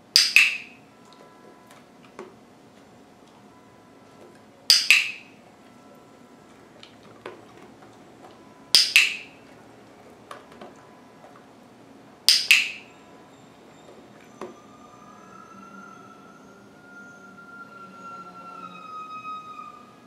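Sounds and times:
dog-training clicker clicks: 0.2s - 0.7s, 4.7s - 5.2s, 8.8s - 9.3s, 12.3s - 12.8s.

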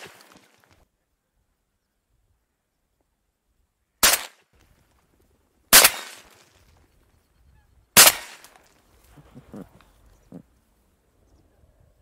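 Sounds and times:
shotgun shots: 4.0s - 4.4s, 5.7s - 6.4s, 8.0s - 8.6s.

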